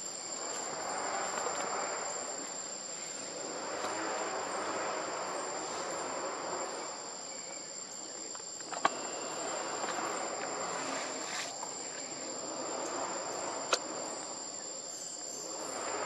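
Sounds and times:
forest insects chorus: 0.0 - 16.0.

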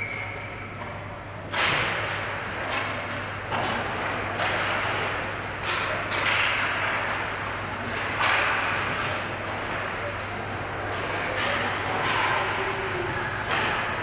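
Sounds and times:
hockey sticks knocking: 1.5 - 10.2, 10.8 - 12.5.

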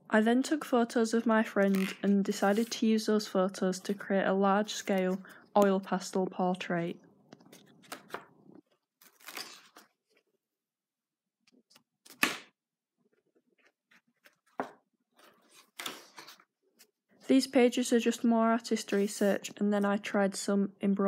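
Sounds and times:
paper pages rustling: 1.6 - 2.9, 13.6 - 17.0.

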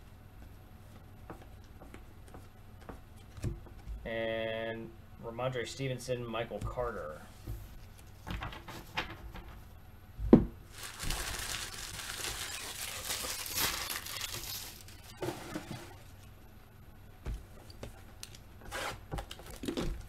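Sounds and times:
foil wrappers crinkling: 10.7 - 16.0, 19.1 - 20.0.

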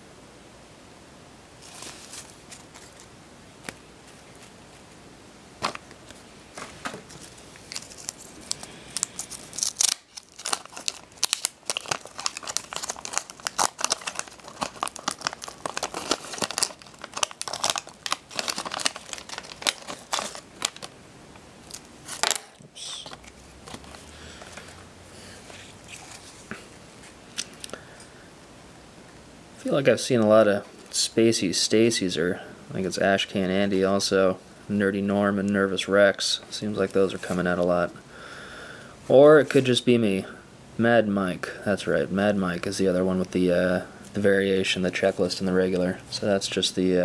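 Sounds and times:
wrapper crinkling and tearing: 7.1 - 20.9, 21.6 - 24.6.

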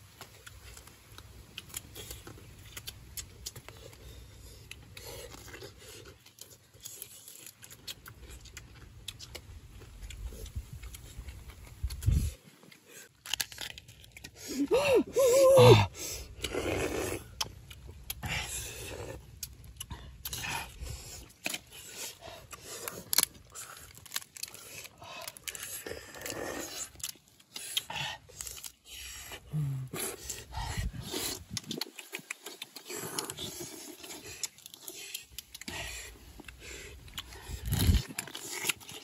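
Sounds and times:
chewing: 0.0 - 39.0
crab shells cracking: 12.8 - 14.5, 21.2 - 28.9
short vocal sound: 14.5 - 16.0, 29.5 - 30.0.

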